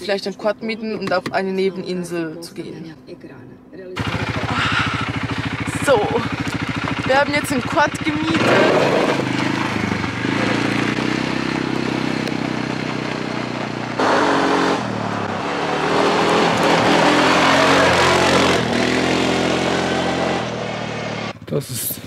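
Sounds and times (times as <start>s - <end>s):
quad bike engine passing: 4.0s - 21.5s.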